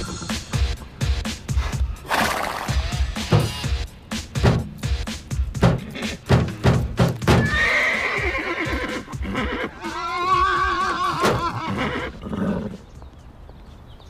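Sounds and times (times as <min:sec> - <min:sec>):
man whinnying like a horse: 0:07.4 - 0:12.7.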